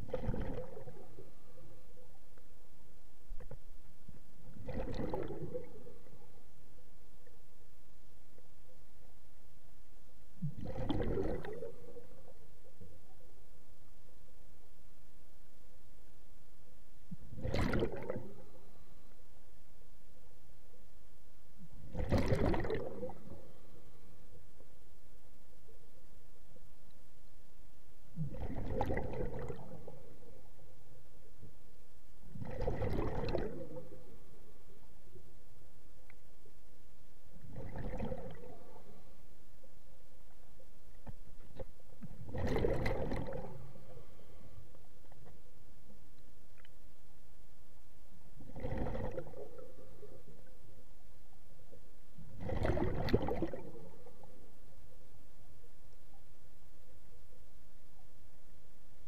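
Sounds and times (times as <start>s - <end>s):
gurgling bubbles of diver exhaling: 0.0s - 1.4s, 4.5s - 6.0s, 10.4s - 12.1s, 17.3s - 18.5s, 21.9s - 23.5s, 28.2s - 30.1s, 32.4s - 34.1s, 37.4s - 38.9s, 42.1s - 44.0s, 48.4s - 50.4s, 52.3s - 54.2s.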